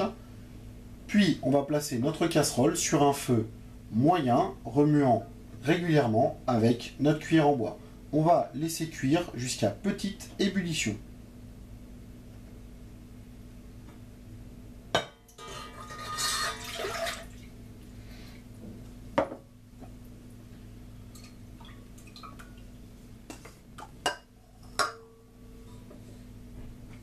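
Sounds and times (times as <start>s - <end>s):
milk splashing into saucepan: 15.4s - 17.5s.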